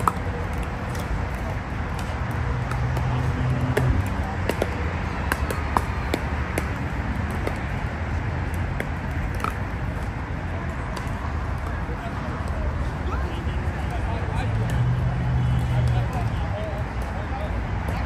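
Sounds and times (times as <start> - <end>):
paddles hitting plastic ball: 0.0 - 10.1
traffic hum: 0.0 - 18.0.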